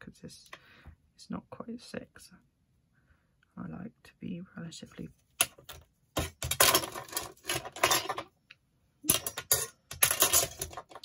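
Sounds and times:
metal ruler scraping and clinking: 6.2 - 8.3, 9.1 - 11.0.

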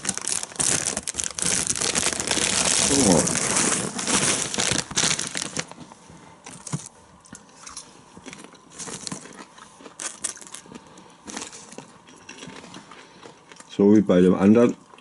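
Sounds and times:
foil snack bag crinkling: 0.0 - 5.8, 8.3 - 12.7
popcorn crunching: 0.0 - 5.8, 7.6 - 13.8.

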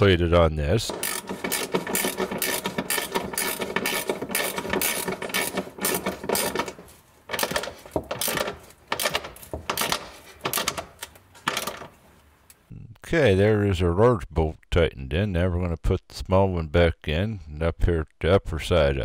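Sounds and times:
socket ratchet clicking: 0.9 - 11.8.

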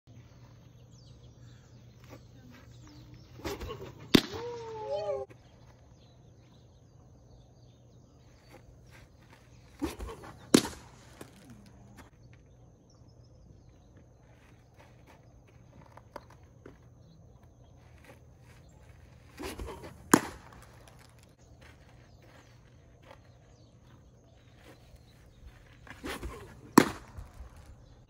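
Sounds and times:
ball popping into catcher's mitt: 3.4 - 4.6, 9.8 - 12.1, 19.4 - 21.3, 25.9 - 27.7.

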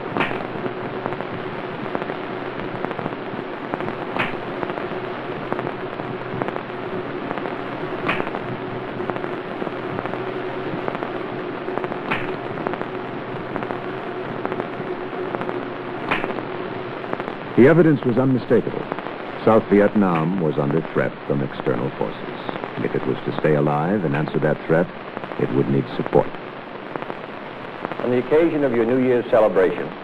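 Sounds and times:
low hum: 0.0 - 28.7
film soundtrack crackle and hiss: 0.0 - 30.0
sharp click: 4.2 - 4.4, 12.1 - 12.4, 16.1 - 16.4.

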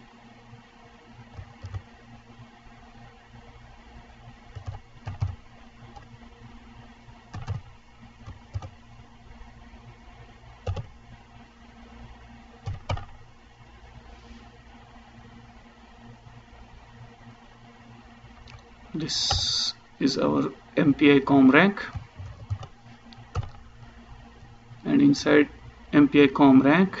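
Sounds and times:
low steady hum: 0.0 - 27.0
computer keyboard keystrokes: 1.3 - 1.9, 4.5 - 6.1, 7.3 - 8.8, 10.6 - 10.9, 12.6 - 13.2, 21.9 - 23.6.

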